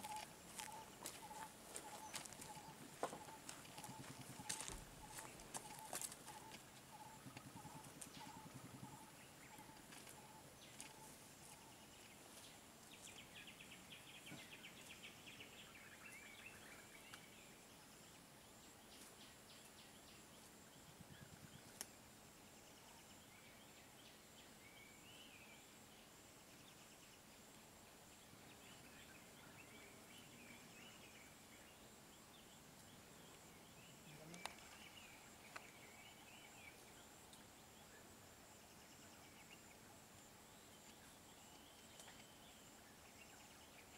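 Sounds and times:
steady high-pitched hum: 0.0 - 14.2
distant bird chirps: 0.0 - 17.6.

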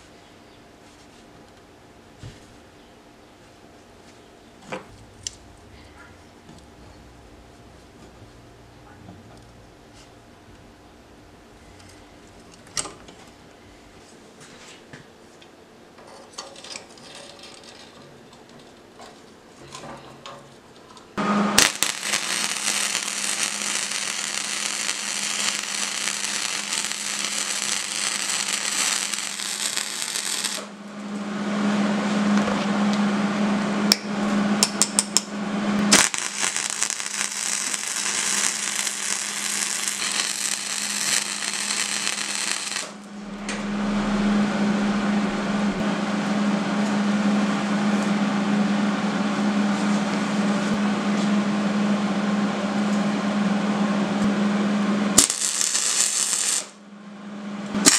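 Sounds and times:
steady hum: 0.0 - 14.6, 21.2 - 57.9
arc welder crackling: 4.9 - 5.6, 21.2 - 30.8, 33.9 - 45.8, 55.1 - 56.8, 57.7 - 57.9.

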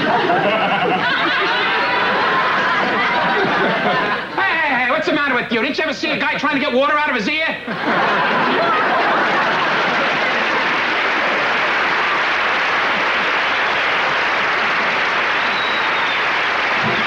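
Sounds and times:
audience applauding: 8.1 - 17.0.

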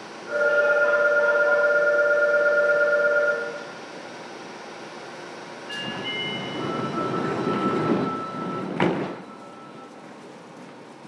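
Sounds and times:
subway car rumble: 0.0 - 11.0.

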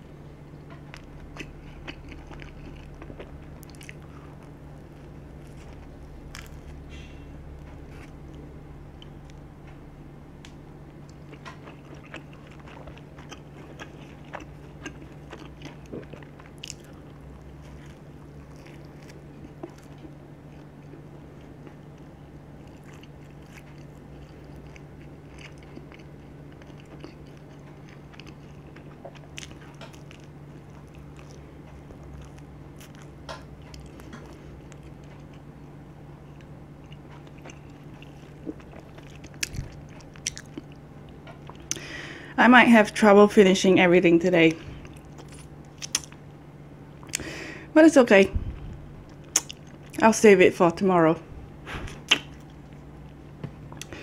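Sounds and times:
steady low hum: 0.0 - 54.0
chewing crunchy crust: 0.5 - 9.8, 10.4 - 42.2, 44.6 - 47.4, 48.5 - 50.1, 51.4 - 54.0
wet mouth clicks: 45.8 - 46.2, 49.3 - 49.6, 51.9 - 52.4.

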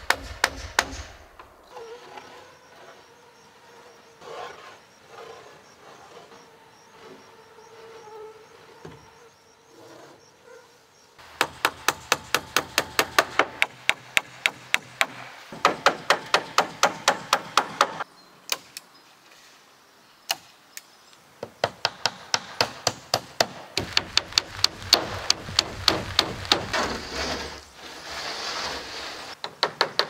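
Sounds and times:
hammer nailing into wooden boards: 0.0 - 1.2, 11.4 - 18.0, 21.5 - 27.0, 29.4 - 30.0.

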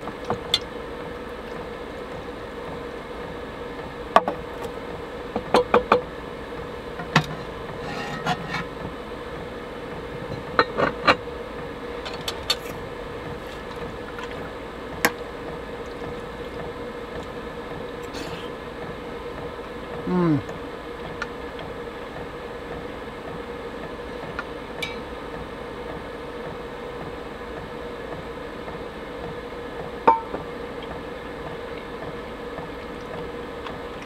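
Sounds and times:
low hum: 0.0 - 34.0
utensils clinking on a bowl and pot: 24.8 - 25.1.

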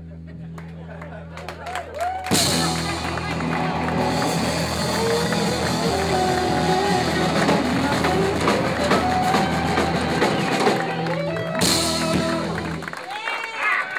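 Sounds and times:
live rock band playing: 2.0 - 13.0.

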